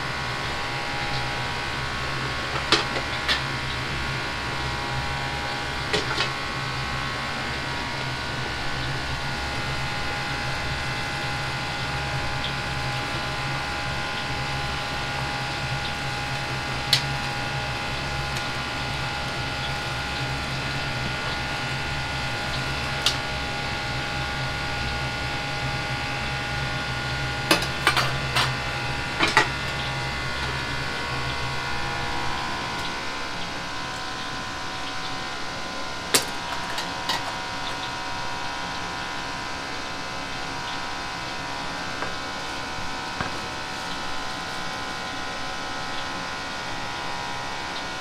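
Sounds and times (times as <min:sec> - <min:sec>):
burners and exhaust fan humming: 0:00.0 - 0:48.0.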